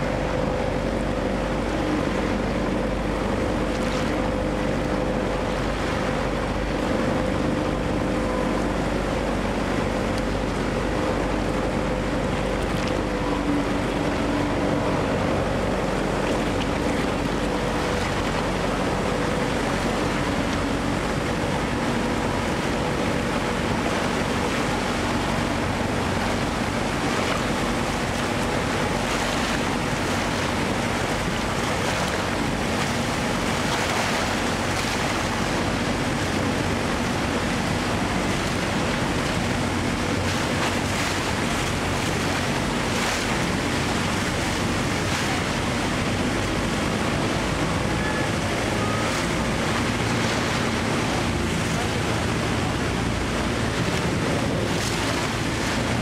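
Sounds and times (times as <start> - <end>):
low steady hum: 0.0 - 56.0
waterfall roaring: 0.0 - 56.0.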